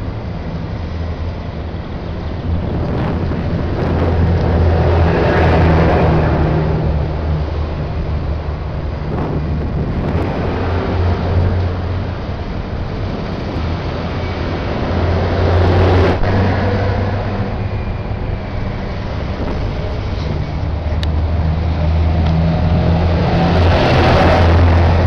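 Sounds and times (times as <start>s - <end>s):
heavy truck engines droning: 0.0s - 25.0s
traffic noise: 0.0s - 25.0s.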